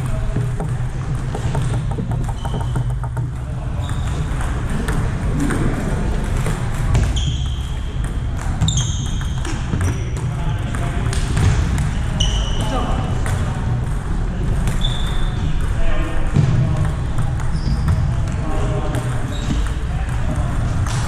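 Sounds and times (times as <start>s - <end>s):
ping-pong balls ticking: 0.0s - 21.0s
high squeaks: 2.2s - 3.1s, 7.1s - 7.9s, 8.6s - 10.0s, 12.2s - 12.8s.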